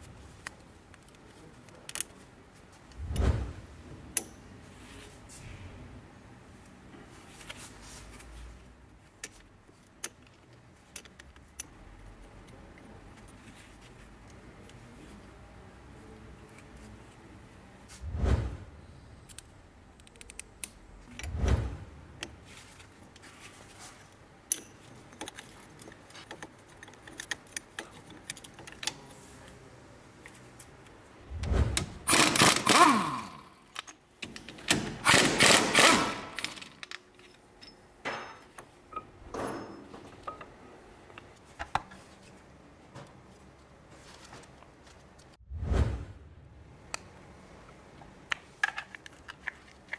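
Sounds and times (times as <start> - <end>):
metal tools clicking and clinking: 35.4 - 40.5.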